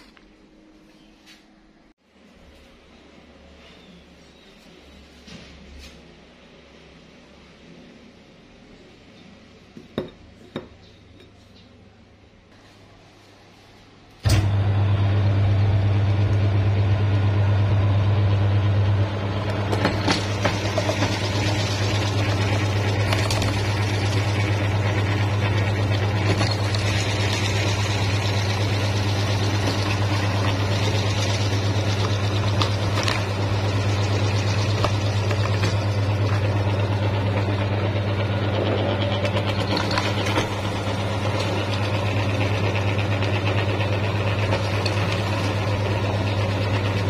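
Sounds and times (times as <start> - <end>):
meat grinder motor humming: 14.3 - 47.0.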